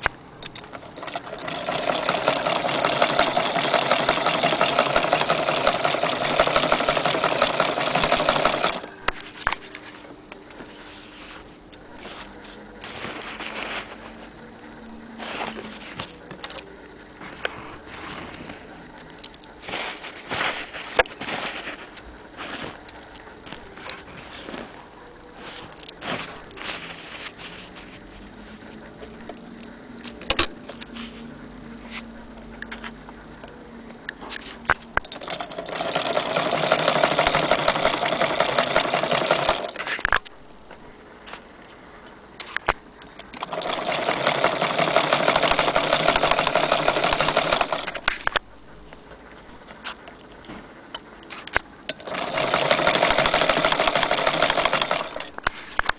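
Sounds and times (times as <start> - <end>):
sewing machine rapid ticking: 0.5 - 8.9, 35.0 - 39.8, 43.3 - 48.0, 52.0 - 55.3.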